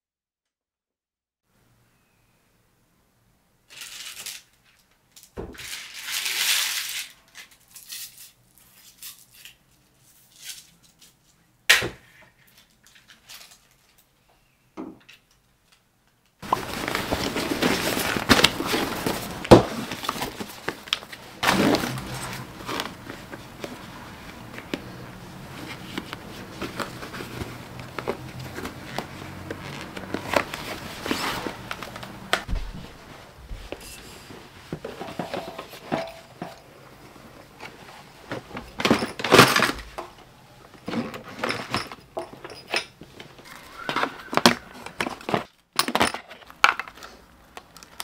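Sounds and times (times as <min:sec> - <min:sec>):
plastic bag crinkling: 0:05.6 - 0:09.4, 0:16.4 - 0:32.4
canvas bag rustling: 0:16.4 - 0:35.4.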